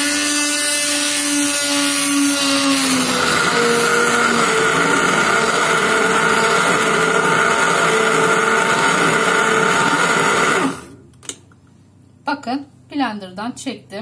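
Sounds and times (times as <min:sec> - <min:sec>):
immersion blender running: 0:00.0 - 0:11.0.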